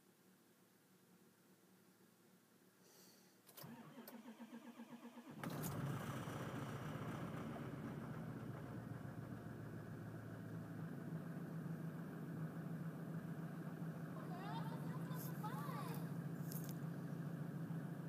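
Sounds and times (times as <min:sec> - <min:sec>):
diesel engine idling: 0:03.6 - 0:18.0.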